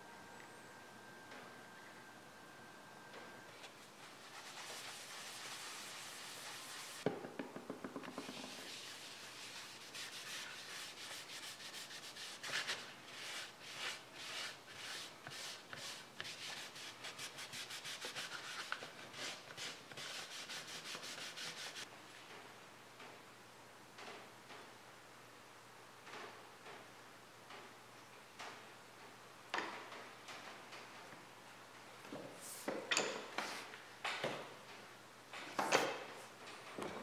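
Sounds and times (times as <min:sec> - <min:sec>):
paper towel rubbing leather: 0:04.0 - 0:07.0.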